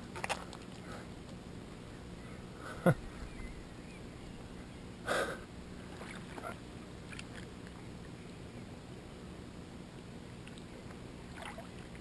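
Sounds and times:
water lapping and splashing: 0:05.8 - 0:08.2, 0:10.4 - 0:12.0.

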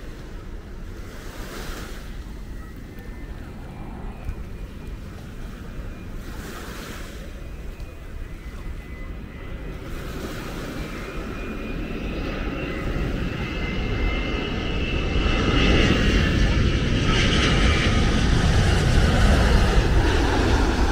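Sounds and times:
surf: 0:00.0 - 0:14.1
high engine whine: 0:00.0 - 0:20.9
jet airliner engine noise: 0:00.0 - 0:20.9
wind: 0:00.0 - 0:20.9.

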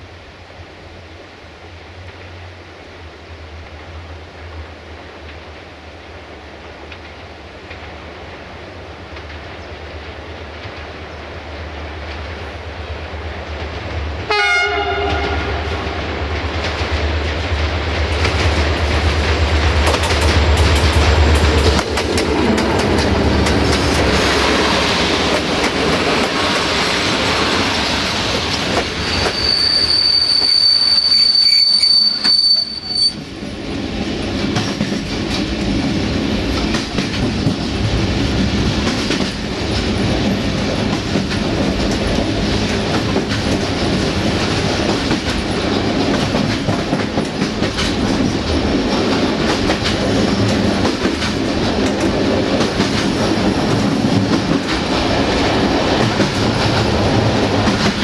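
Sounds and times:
train coaches rolling past: 0:00.0 - 0:58.0
high wheel squeal: 0:28.8 - 0:33.2.

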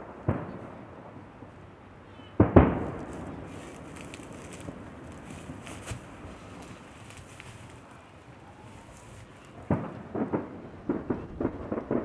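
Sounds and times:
distant firework booms: 0:02.4 - 0:07.0, 0:09.4 - 0:12.0.

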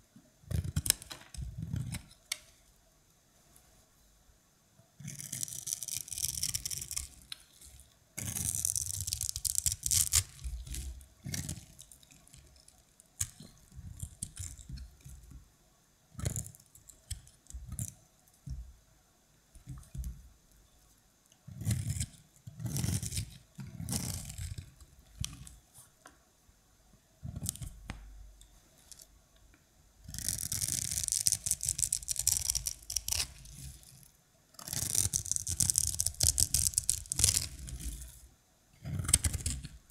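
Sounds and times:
soap crunching and crumbling: 0:05.1 - 0:15.2, 0:21.6 - 0:25.6, 0:30.1 - 0:33.9, 0:34.6 - 0:38.2.

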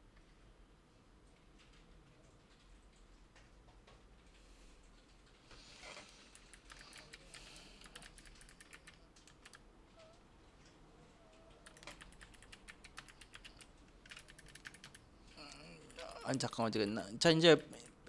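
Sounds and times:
keyboard typing: 0:06.2 - 0:10.2, 0:11.3 - 0:16.4.

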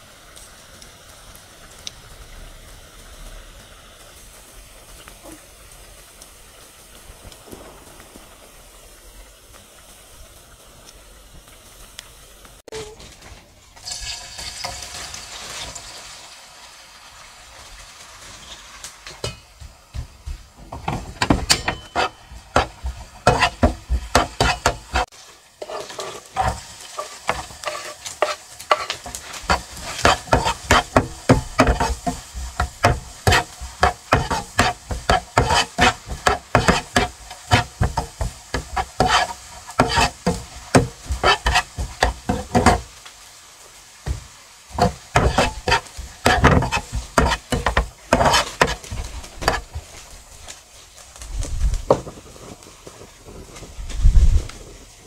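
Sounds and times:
food sizzling in a frying pan: 0:00.0 - 0:55.0
spoon scraping a pan: 0:20.9 - 0:42.9, 0:44.1 - 0:50.2.

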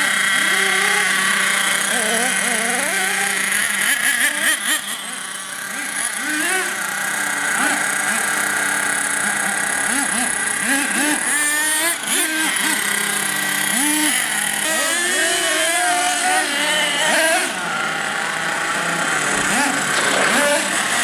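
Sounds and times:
toy truck motors revving: 0:00.0 - 0:21.0.

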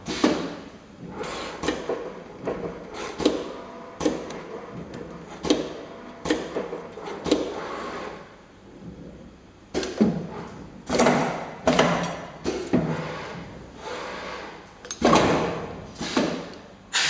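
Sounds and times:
machine whirring hiss: 0:00.0 - 0:08.3, 0:12.4 - 0:17.0.

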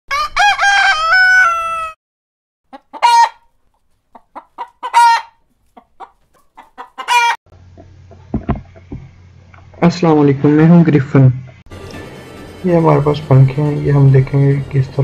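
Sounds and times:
hen cackling and squawking: 0:00.1 - 0:02.0, 0:02.7 - 0:09.8
rooster crowing: 0:00.1 - 0:02.0, 0:03.0 - 0:03.4, 0:04.8 - 0:05.4, 0:07.0 - 0:07.4.

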